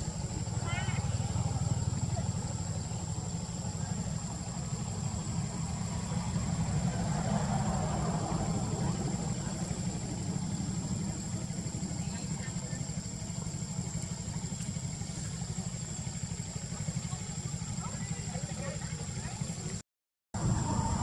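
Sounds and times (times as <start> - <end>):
low rumble: 20.4 - 21.0.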